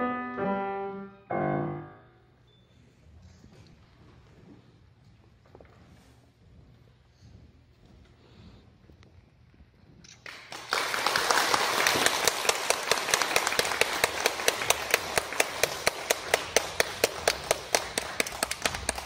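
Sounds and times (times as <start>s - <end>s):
audience applause in a hall: 10.1s - 19.0s
close claps of one person: 10.2s - 19.0s.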